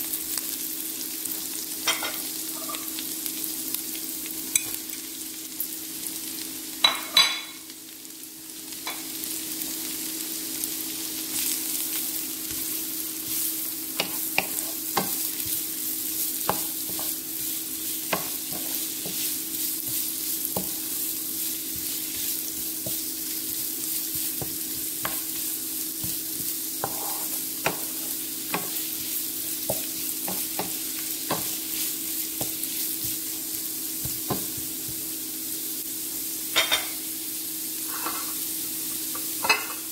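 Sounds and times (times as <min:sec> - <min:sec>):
oil sizzling in a frying pan: 0:00.0 - 0:39.9
spatula tapping and scraping pan: 0:12.5 - 0:15.7, 0:16.4 - 0:20.9, 0:21.7 - 0:23.1, 0:24.0 - 0:31.8.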